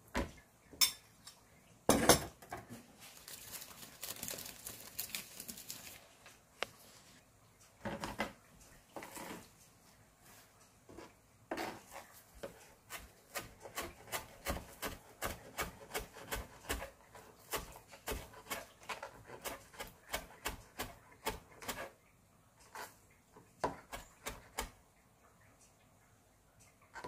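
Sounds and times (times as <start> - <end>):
knife chopping on cutting board: 12.4 - 16.9.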